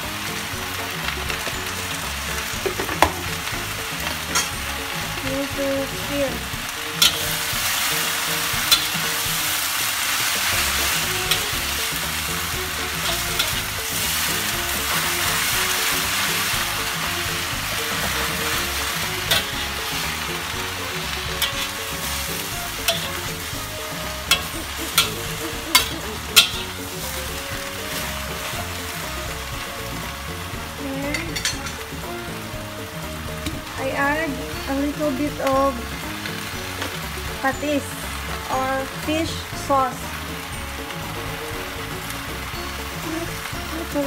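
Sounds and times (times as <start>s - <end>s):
greens sizzling in a wok: 0.0s - 44.0s
metal spatula clinking on wok: 4.0s - 4.6s, 7.0s - 9.4s, 10.4s - 16.6s, 17.8s - 20.3s, 20.9s - 27.3s, 31.0s - 31.8s.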